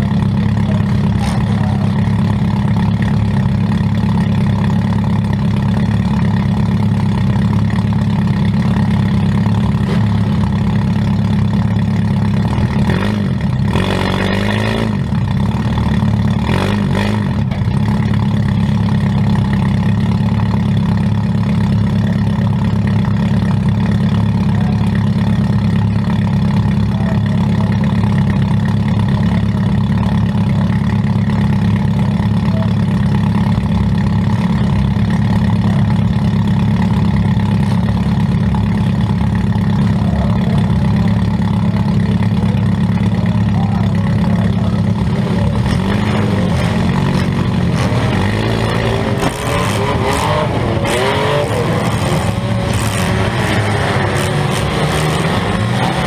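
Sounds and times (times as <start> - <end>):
car engine idling: 0.0 - 56.0.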